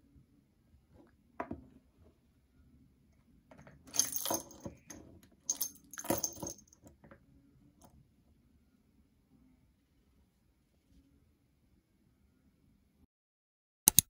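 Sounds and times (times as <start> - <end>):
small bell jingling: 3.9 - 6.8.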